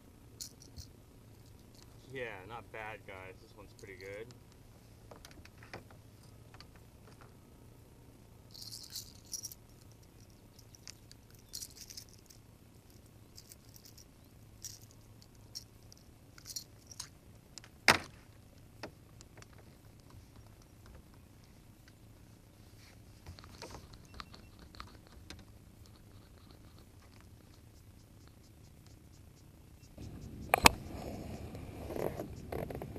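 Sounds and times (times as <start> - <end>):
metallic jangling of fishing lure: 0.4 - 2.0, 8.5 - 17.2
sharp click: 30.0 - 30.8.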